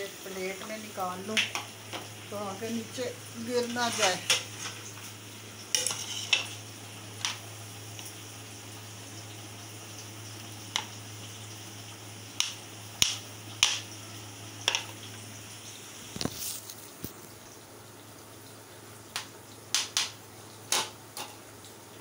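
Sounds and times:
dishes and utensils clinking: 0:05.7 - 0:06.6.

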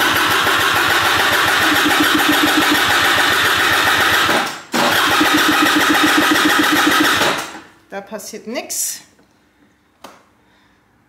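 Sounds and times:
scooter starter cranking engine: 0:00.0 - 0:07.7.

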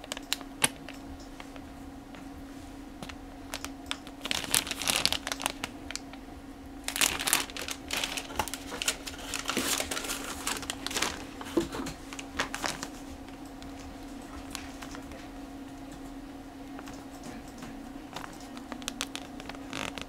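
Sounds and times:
plastic bags crinkling: 0:03.0 - 0:06.2, 0:06.8 - 0:15.2, 0:18.2 - 0:20.0.

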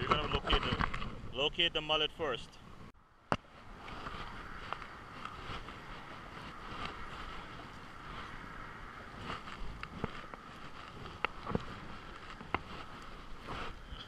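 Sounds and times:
wind noise on microphone: 0:00.0 - 0:01.6, 0:02.7 - 0:14.0.

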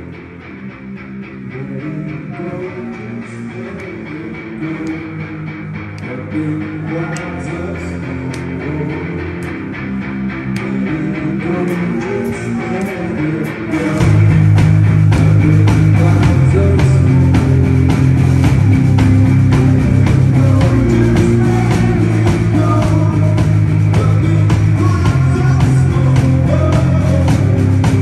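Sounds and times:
heavy bass guitar: 0:00.0 - 0:28.0
rock band playing live: 0:00.0 - 0:28.0.

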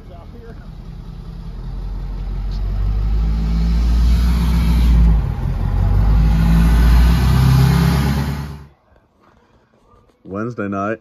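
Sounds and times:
truck engine rumbling: 0:00.0 - 0:09.0.

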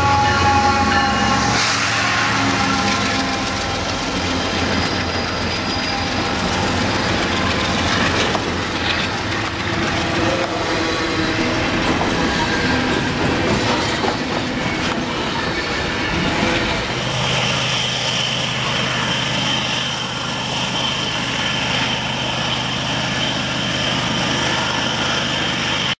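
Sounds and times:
locomotive rumble: 0:00.0 - 0:26.0
train wheels clattering on rails: 0:01.4 - 0:25.9.

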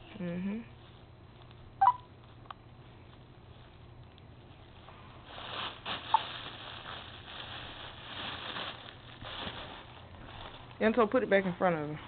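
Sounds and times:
cellophane crinkling: 0:02.2 - 0:11.2.

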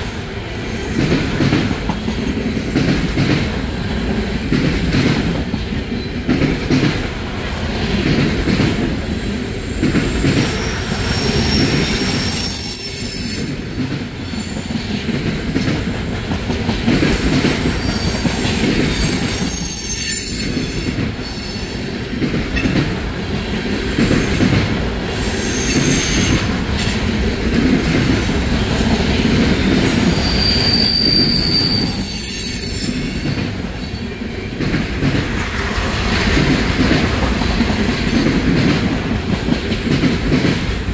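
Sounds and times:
train wheels rumbling on rails: 0:00.0 - 0:40.9
wheel squeals: 0:29.7 - 0:33.1.

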